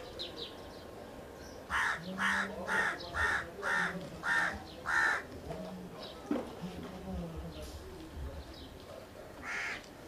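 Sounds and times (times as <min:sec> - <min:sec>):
bird harsh calls: 0:01.4 - 0:05.3, 0:09.4 - 0:09.8.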